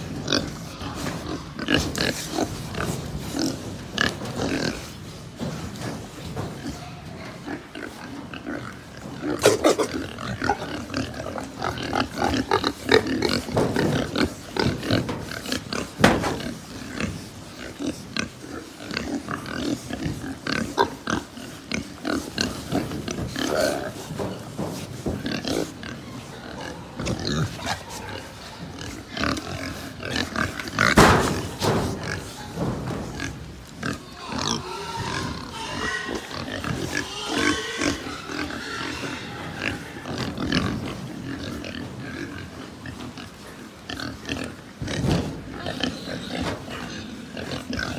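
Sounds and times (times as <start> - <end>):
pigs grunting and calling: 0.0 - 47.9
pigs crying sharply: 9.3 - 10.8, 33.8 - 40.5.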